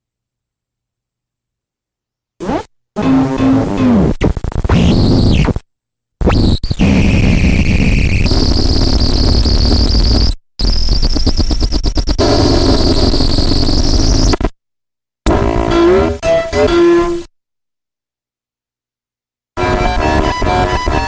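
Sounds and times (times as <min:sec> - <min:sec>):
distorted electronic noise: 0:02.4 - 0:05.6, 0:06.2 - 0:14.5, 0:15.3 - 0:17.3, 0:19.6 - 0:21.0
rapid electronic stutter: 0:02.4 - 0:05.6, 0:06.2 - 0:14.5
high whining tones: 0:15.3 - 0:17.3.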